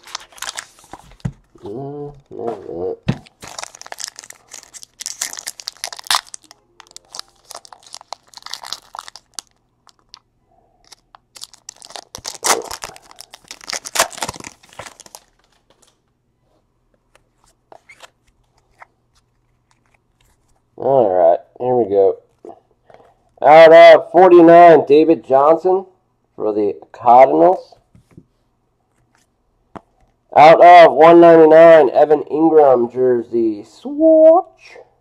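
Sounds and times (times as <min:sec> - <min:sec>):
foil wrapper tearing and crinkling: 0:00.0 - 0:01.0, 0:03.3 - 0:10.2, 0:10.8 - 0:15.6.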